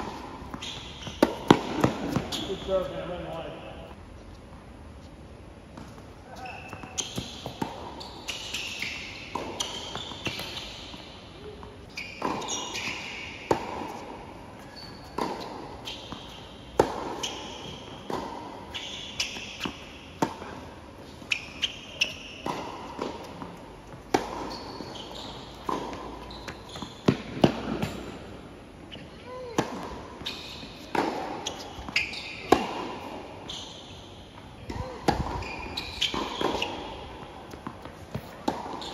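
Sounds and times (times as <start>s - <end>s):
ball bouncing: 0.0s - 3.4s
racket striking tennis ball: 0.0s - 3.4s, 6.7s - 11.2s, 12.0s - 14.3s, 15.2s - 20.6s, 21.4s - 28.3s, 29.5s - 33.4s, 34.4s - 38.9s
shoes squeaking on court: 0.0s - 38.9s.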